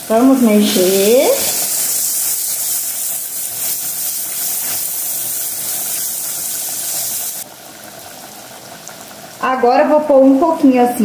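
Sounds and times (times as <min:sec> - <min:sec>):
onion sizzling in hot oil: 0:00.0 - 0:11.0
spatula stirring in pan: 0:00.6 - 0:07.4.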